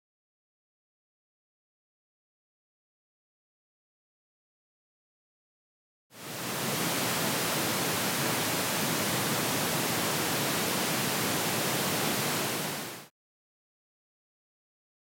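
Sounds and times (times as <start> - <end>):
pink noise test signal: 6.2 - 13.1.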